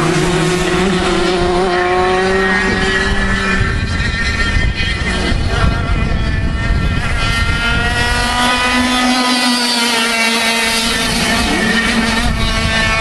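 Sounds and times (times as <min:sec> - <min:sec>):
two-stroke kart engine buzzing: 0:00.0 - 0:13.0.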